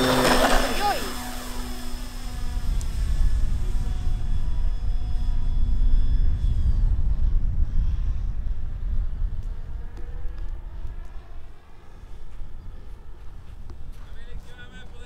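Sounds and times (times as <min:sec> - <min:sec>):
thin high whine: 0:00.0 - 0:09.0
model plane motor droning: 0:00.0 - 0:15.0
wind rumble on microphone: 0:00.0 - 0:15.0.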